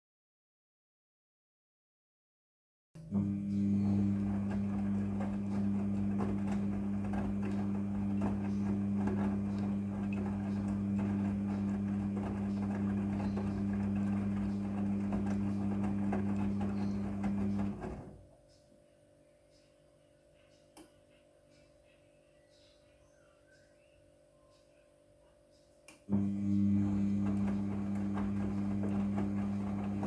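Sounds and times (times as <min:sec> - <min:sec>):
washing machine motor hum: 0:03.0 - 0:18.4, 0:26.0 - 0:30.0.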